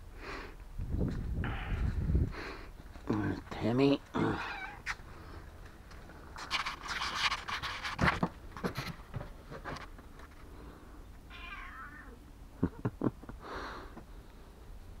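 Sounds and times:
cat meowing: 4.4s - 4.9s, 11.3s - 12.2s.

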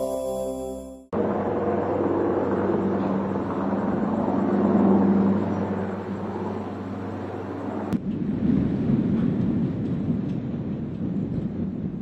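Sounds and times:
engine hum with low tone: 0.4s - 8.2s.

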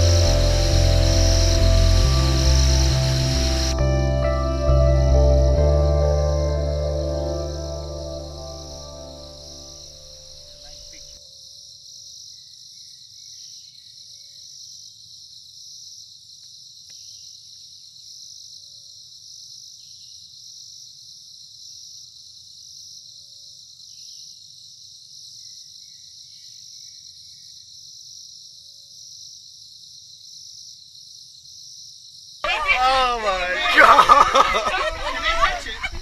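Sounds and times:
insects trilling: 0.0s - 3.9s, 6.6s - 36.0s
low rumble: 0.0s - 10.2s.

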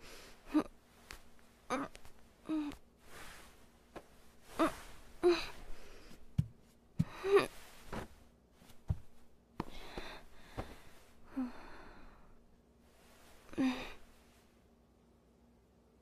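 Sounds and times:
soft low thumps: 6.2s - 10.9s.

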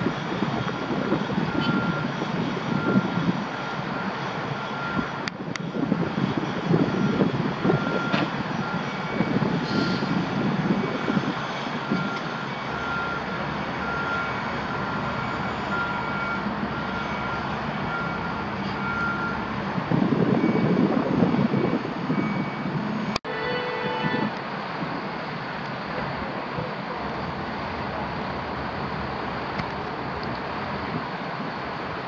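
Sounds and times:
heavy vehicle engines rumbling: 0.0s - 32.0s
reversing beeper beeps: 0.7s - 2.1s, 2.7s - 5.1s, 6.8s - 10.1s, 10.8s - 19.5s, 20.4s - 22.7s.

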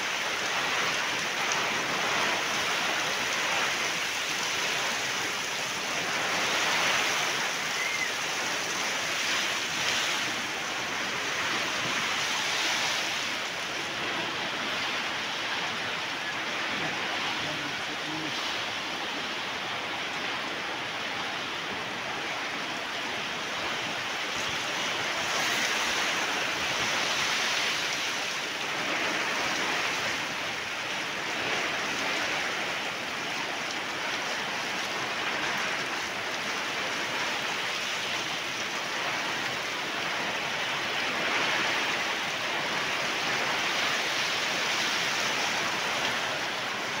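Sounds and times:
heavy rain pouring: 0.0s - 47.0s.

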